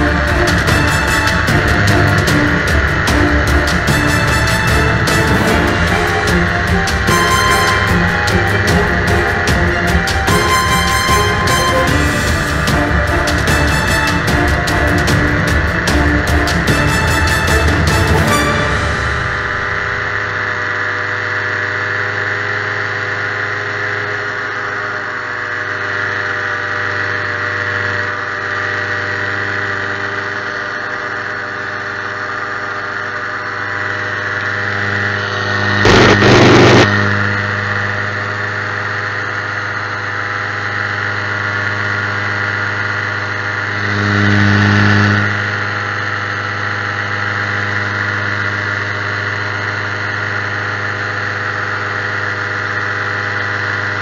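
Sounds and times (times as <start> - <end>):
loud rushing burst: 0.0 - 20.8, 35.8 - 37.0
ultralight aircraft engine running: 0.0 - 54.0.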